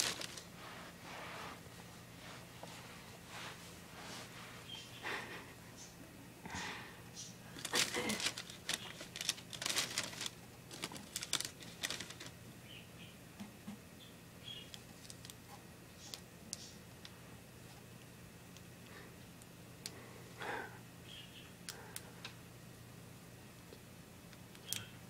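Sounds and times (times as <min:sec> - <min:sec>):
plastic bag crinkling: 0:00.0 - 0:00.5, 0:07.5 - 0:12.4
bird peeping: 0:04.6 - 0:05.0, 0:12.6 - 0:13.2, 0:14.0 - 0:14.8, 0:21.0 - 0:21.6.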